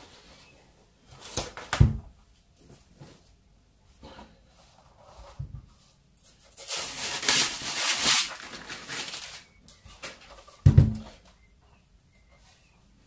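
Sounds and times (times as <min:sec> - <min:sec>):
plastic wrapping crinkling: 0:06.5 - 0:10.6.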